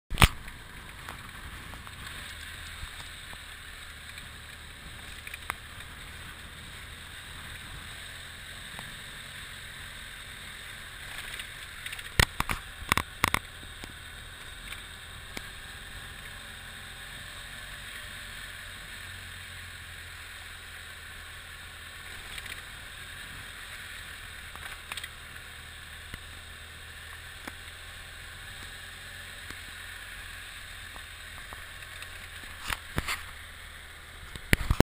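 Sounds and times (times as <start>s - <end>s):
motorcycle engine: 0.1s - 34.8s.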